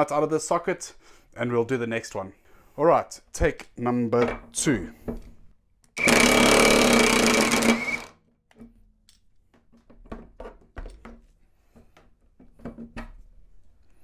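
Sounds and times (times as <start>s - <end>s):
impact wrench hammering: 6.0s - 8.1s.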